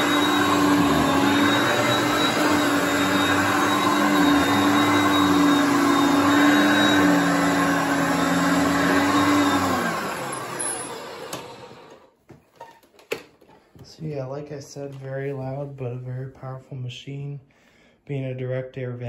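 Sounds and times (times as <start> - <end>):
vacuum cleaner motor whine: 0.0 - 12.2.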